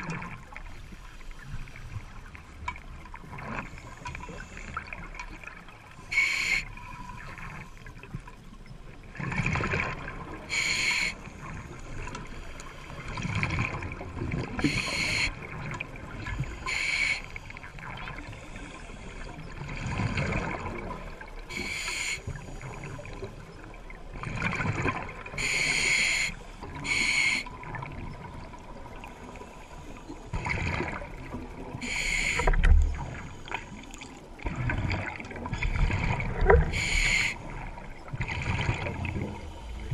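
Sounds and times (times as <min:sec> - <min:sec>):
hissing regulator inhalations: 0:06.1 - 0:06.8, 0:10.5 - 0:11.3, 0:14.6 - 0:15.4, 0:16.4 - 0:17.6, 0:21.5 - 0:22.6, 0:25.4 - 0:27.5, 0:31.8 - 0:32.6, 0:36.7 - 0:37.4.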